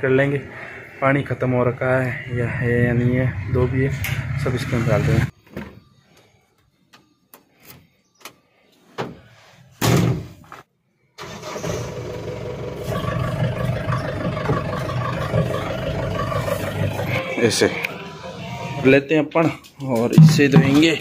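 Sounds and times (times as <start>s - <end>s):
diesel engine running: 11.2s - 18.8s.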